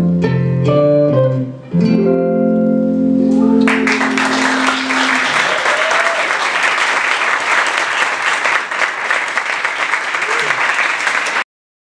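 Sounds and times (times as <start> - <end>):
guitar chord ringing: 0.0 - 5.2
audience applauding: 3.3 - 11.5.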